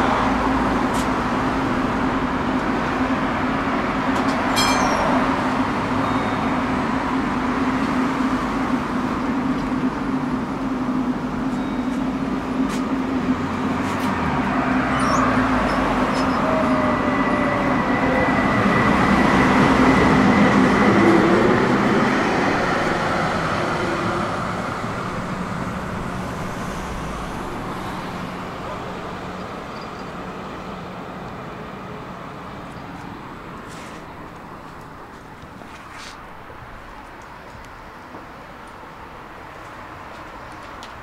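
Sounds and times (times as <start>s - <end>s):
tram rumbling on rails: 0.0s - 41.0s
thin high tone: 4.5s - 6.5s, 14.8s - 18.2s.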